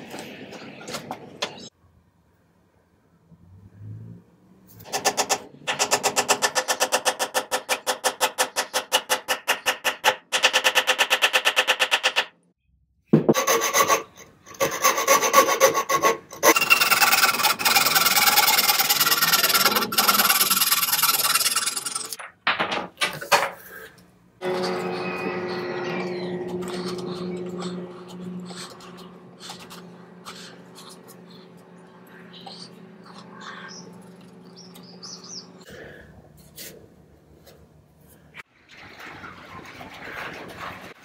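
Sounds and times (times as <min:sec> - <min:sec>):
hand saw rasping through wood: 0:13.4 - 0:22.2.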